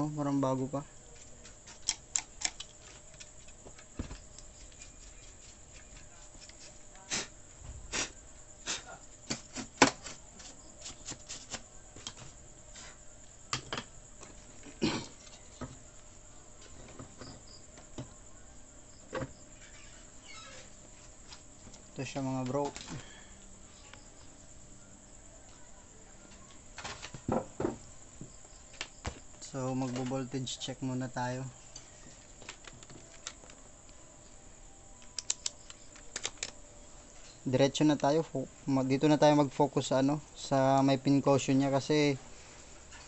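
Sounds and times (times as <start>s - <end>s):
faint steady hum: 0.0s - 43.0s
paintbrush brushing circuit board: 4.5s - 6.9s.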